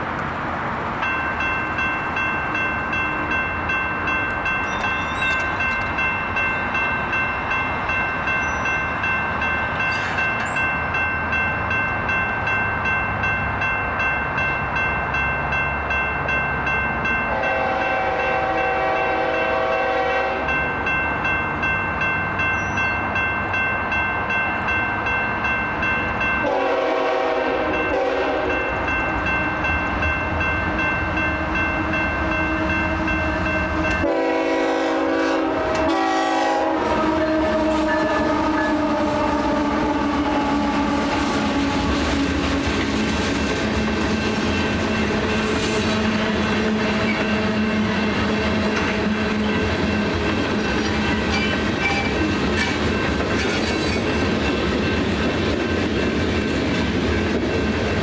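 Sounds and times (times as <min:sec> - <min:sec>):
locomotives passing: 0:00.0 - 0:58.0
railroad crossing bell ringing: 0:00.9 - 0:56.9
train horn blasts: 0:17.3 - 0:20.6, 0:26.4 - 0:28.7, 0:31.4 - 0:42.6, 0:44.4 - 0:49.6.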